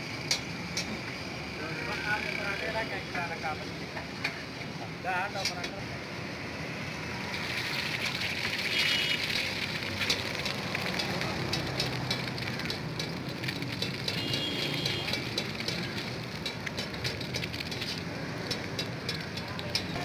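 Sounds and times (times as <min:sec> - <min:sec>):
egg sizzling in hot oil: 0:07.0 - 0:20.0
oil crackling and spattering: 0:07.0 - 0:20.0.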